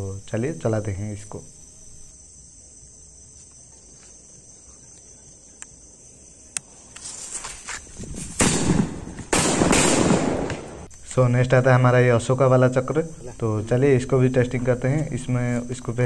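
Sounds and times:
crickets chirping: 0:00.0 - 0:16.0
firecrackers bursting: 0:08.2 - 0:10.9.

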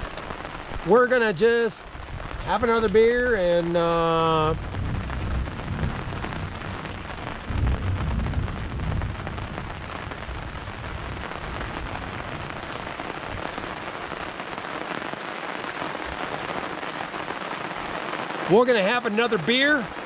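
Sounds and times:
steady rain falling: 0:00.0 - 0:20.0
low rumble: 0:02.0 - 0:14.2.

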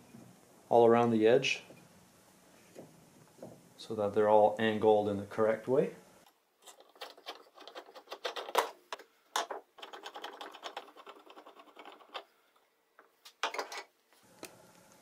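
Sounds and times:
wooden table legs scraping and rattling: 0:06.6 - 0:12.3, 0:13.0 - 0:13.9.

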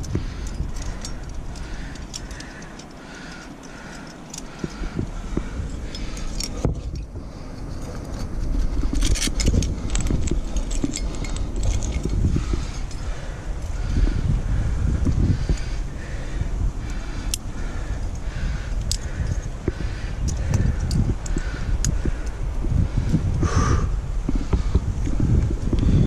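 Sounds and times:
carabiners clinking and jangling: 0:00.0 - 0:14.3, 0:16.8 - 0:22.4
wind rumble on microphone: 0:00.0 - 0:26.0.

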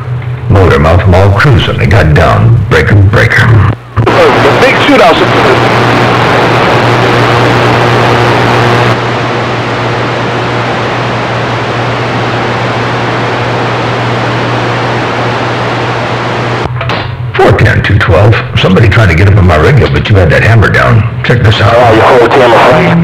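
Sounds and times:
low hum: 0:00.0 - 0:21.5
radio static: 0:00.5 - 0:16.7, 0:17.4 - 0:23.0.

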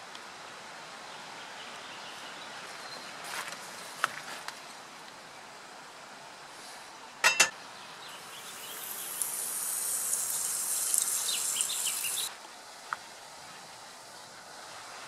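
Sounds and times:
batter sizzling in a frying pan: 0:08.2 - 0:12.3.

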